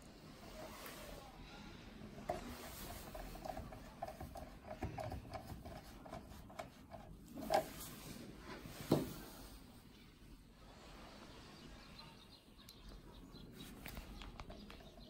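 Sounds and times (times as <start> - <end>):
rustling and scraping of tools: 0.0 - 9.9.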